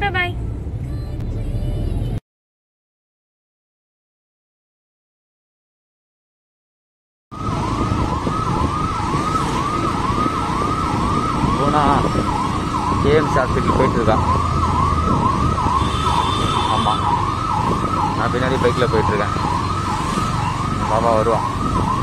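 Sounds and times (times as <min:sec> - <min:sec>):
vehicle and traffic rumble: 0:00.0 - 0:02.2, 0:07.3 - 0:22.0
ambulance siren wailing: 0:07.3 - 0:22.0.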